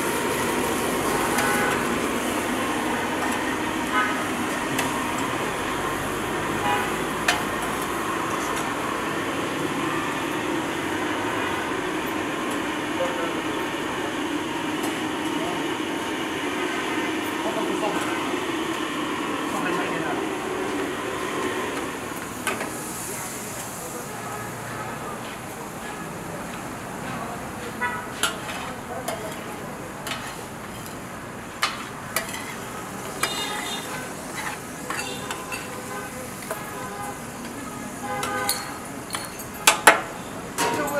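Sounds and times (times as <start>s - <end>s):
metal spatula scraping pan: 32.2s - 32.6s, 33.2s - 35.8s.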